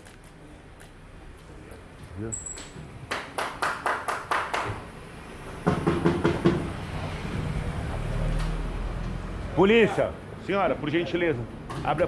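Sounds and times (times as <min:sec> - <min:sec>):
knocking on metal gate: 0:05.7 - 0:06.7.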